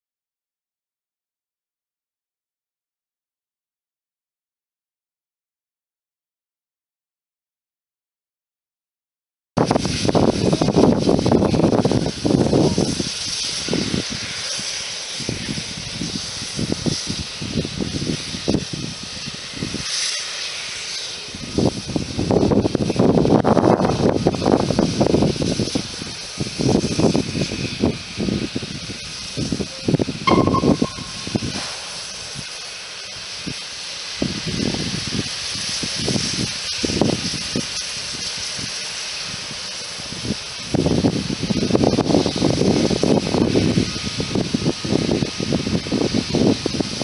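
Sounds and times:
steam hissing from locomotive: 9.6s - 47.0s.

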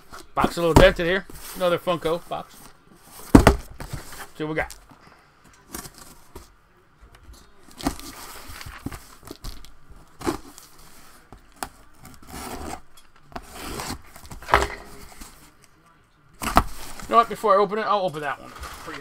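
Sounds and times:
blade cutting cardboard box: 12.0s - 12.8s.

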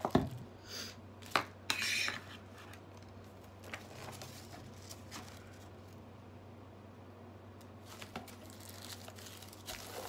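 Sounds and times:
packaging rustling: 3.0s - 6.0s, 7.8s - 10.0s.

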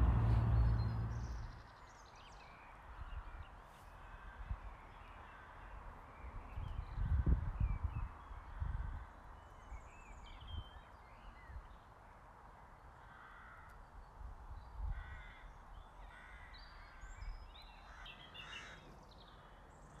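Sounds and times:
birds chirping: 0.0s - 2.0s
wind on microphone: 6.7s - 9.0s.

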